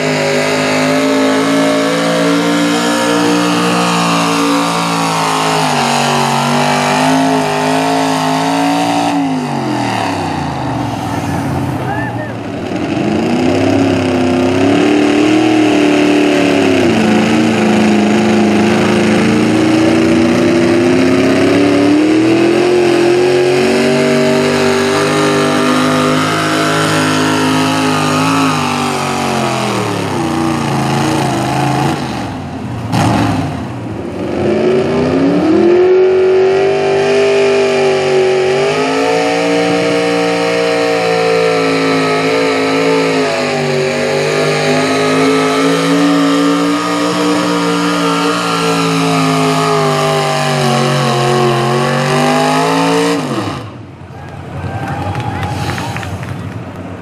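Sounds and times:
tractor engines revving high: 0.0s - 57.0s.

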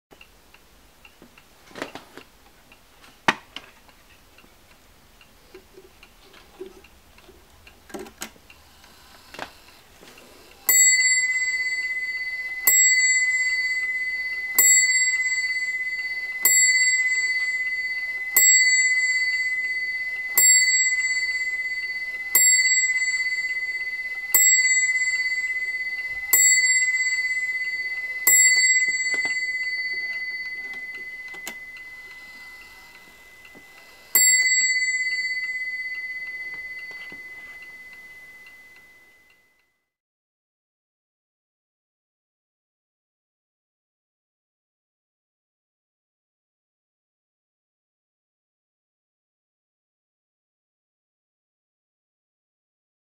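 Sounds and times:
clock striking: 8.6s - 39.1s.

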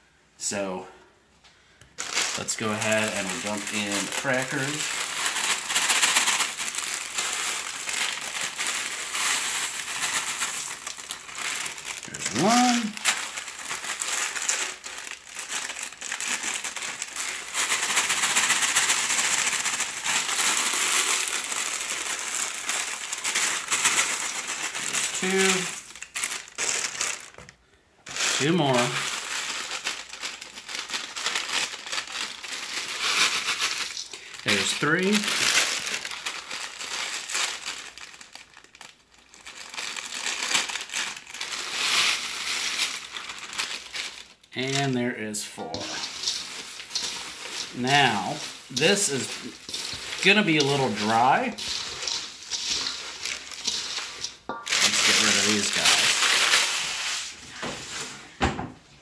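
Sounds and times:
cracker pieces falling into bowl: 2.0s - 27.5s, 28.1s - 57.2s
plastic bag crinkling: 2.0s - 58.0s.

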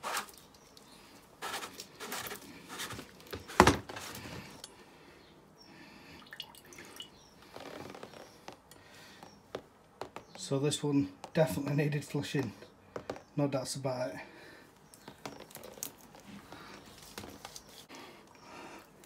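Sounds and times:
water dripping and splashing: 6.2s - 7.2s.

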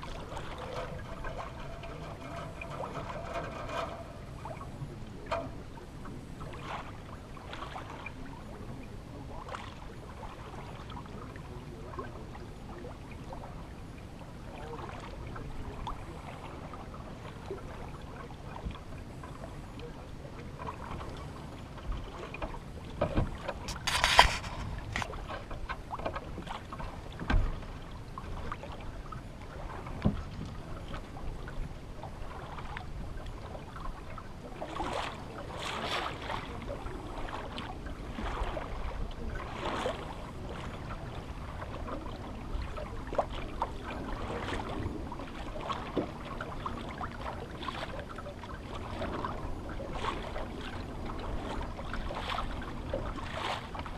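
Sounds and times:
water lapping against boat hull: 0.0s - 53.9s
wind rumble on microphone: 0.0s - 53.9s
knocks on boat: 21.9s - 27.7s, 29.9s - 30.6s.

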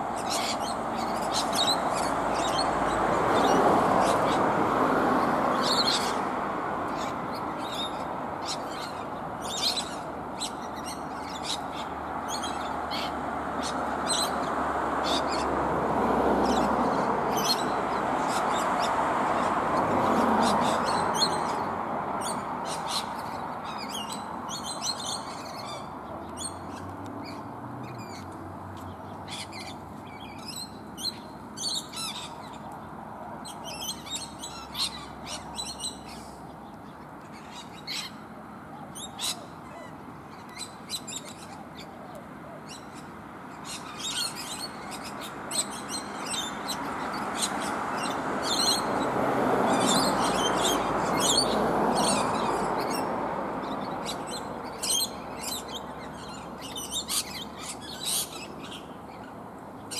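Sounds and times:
parrots screeching and chattering: 0.2s - 4.5s, 5.6s - 6.3s, 6.9s - 15.5s, 33.4s - 36.3s, 43.6s - 49.0s, 49.6s - 59.2s.

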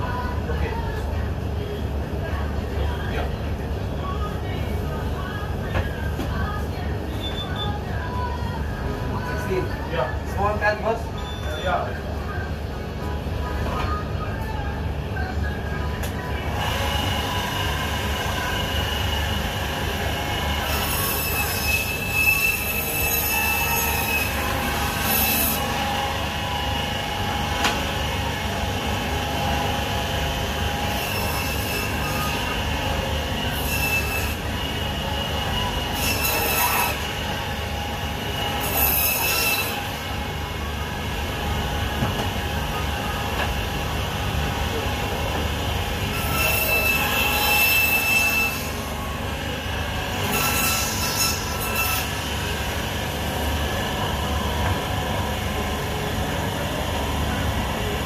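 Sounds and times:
high screeching: 20.6s - 25.8s.

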